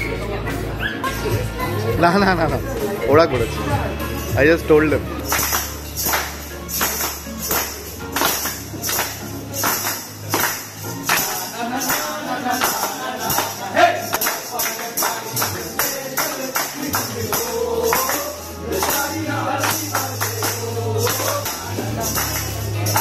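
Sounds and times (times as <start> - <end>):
people clapping: 5.2 - 23.0
tambourine shaking: 5.2 - 23.0
group singing a birthday song: 8.2 - 23.0.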